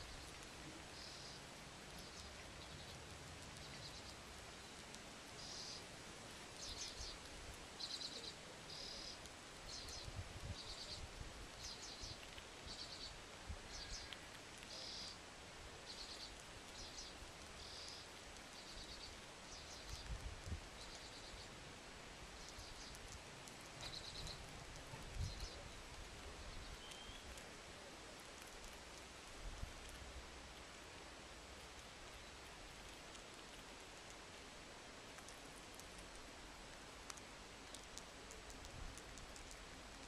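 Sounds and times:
faint outdoor background hiss: 0.0 - 40.0
small bird calling: 0.1 - 3.0, 3.6 - 5.9, 6.6 - 15.2, 15.9 - 20.1, 20.7 - 21.6, 22.4 - 25.8, 26.4 - 27.4.

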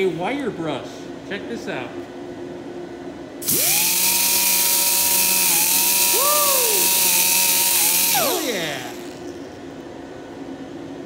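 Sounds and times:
air rotary tool hiss and whine: 3.4 - 9.4.

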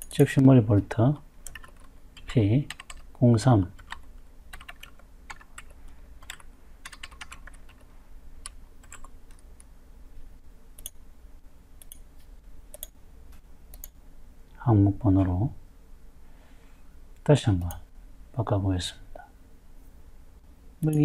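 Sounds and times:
low steady hum: 0.0 - 21.0
keyboard keystrokes: 1.4 - 3.0.

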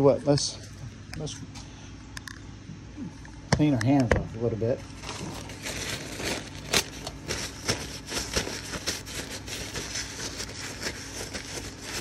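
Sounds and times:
paper towels rustling: 4.9 - 12.0.

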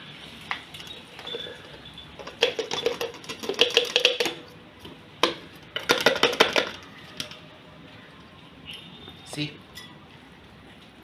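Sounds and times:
plastic jar clicks and rattles: 1.2 - 4.5, 5.2 - 7.4.

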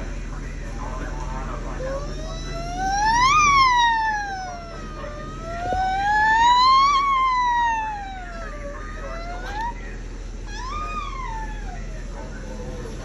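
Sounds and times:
siren wailing: 1.8 - 9.8.

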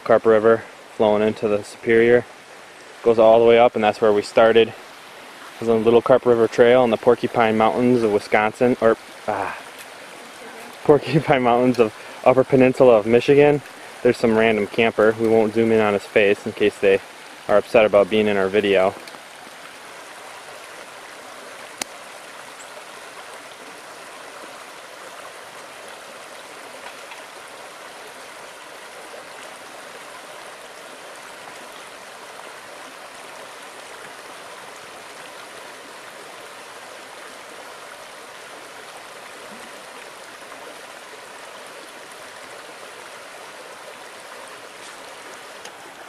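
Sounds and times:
river running over rocks: 0.0 - 46.0.

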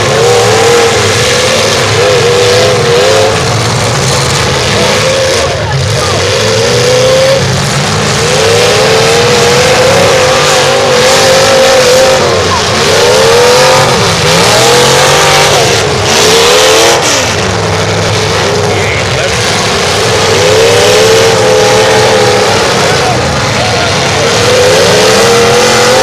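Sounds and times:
car engines revving hard: 0.0 - 26.0.

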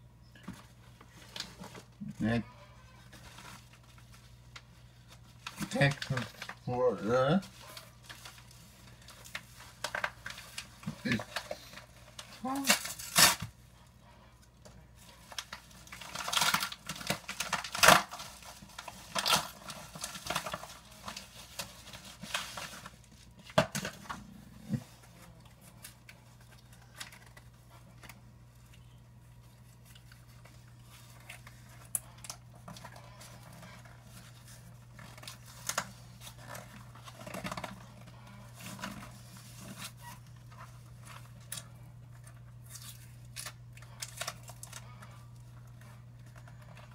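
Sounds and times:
packaging tearing and crinkling: 7.7 - 13.6, 15.1 - 24.3, 29.8 - 46.9.

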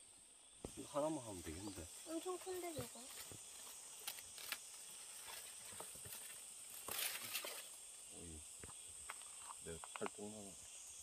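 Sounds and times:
insects chirring: 0.0 - 11.0
brief rustle: 5.2 - 7.7.

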